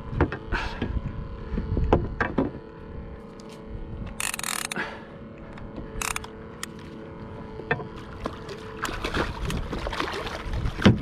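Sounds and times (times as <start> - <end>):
fishing reel clicks: 4.1 - 4.8, 6.0 - 6.8
water lapping and splashing: 6.6 - 11.0.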